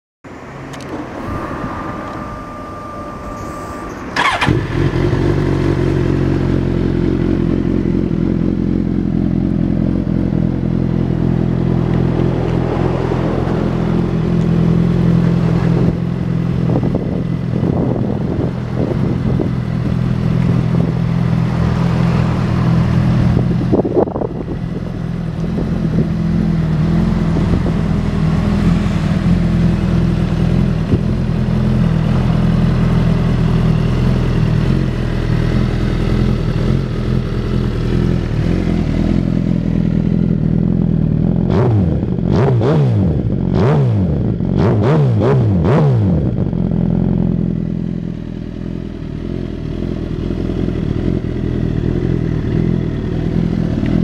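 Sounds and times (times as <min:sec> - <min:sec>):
steady high tone: 0:00.3 - 0:07.6
motorcycle engine starting and idling: 0:00.4 - 0:54.0.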